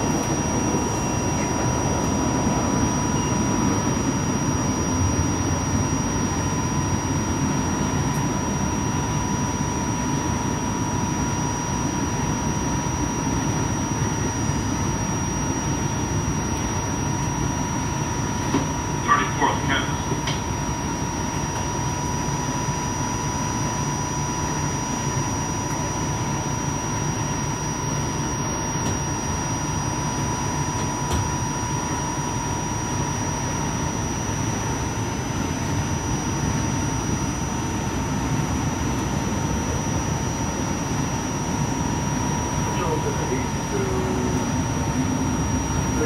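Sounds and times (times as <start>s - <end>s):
high whine: 0.0s - 46.0s.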